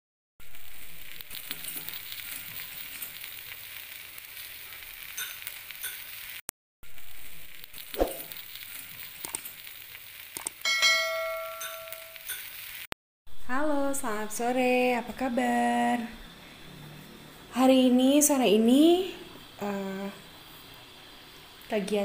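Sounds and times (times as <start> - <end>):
fish sizzling on a pan: 0.4 - 12.9
bell-like chime: 10.7 - 12.4.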